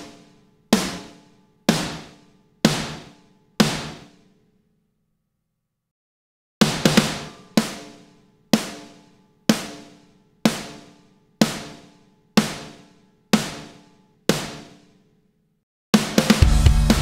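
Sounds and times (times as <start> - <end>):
snare drum hits: 0.8 - 4.2, 6.6 - 14.9, 16.0 - 17.0.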